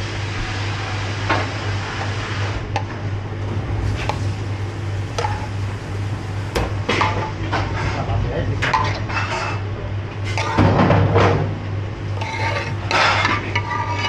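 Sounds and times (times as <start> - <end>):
kitchen hum and hiss: 0.0 - 14.0
ladle stirring sauce: 12.0 - 14.0.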